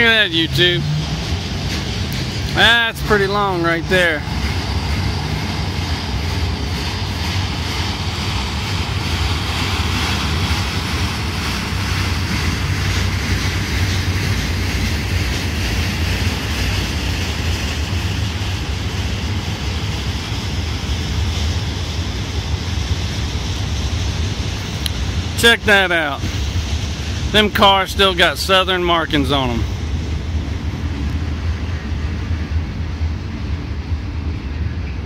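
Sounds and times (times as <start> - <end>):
freight train rolling past: 0.0 - 35.0
steel wheels rumbling on track: 0.0 - 35.0.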